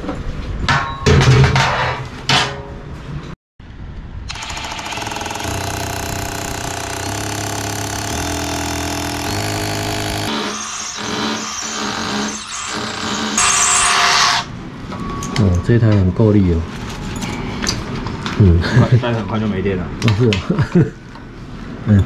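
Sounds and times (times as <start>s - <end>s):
power tool running under load: 4.3s - 14.5s.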